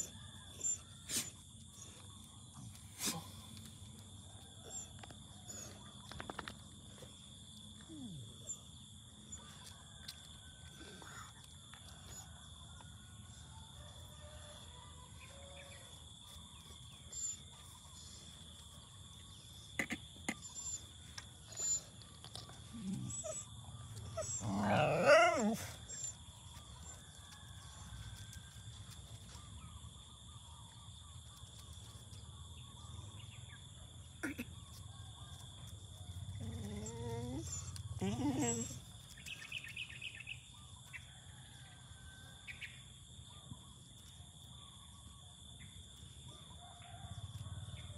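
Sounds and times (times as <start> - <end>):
dog howling call: 20.4 - 28.4, 36.1 - 38.9.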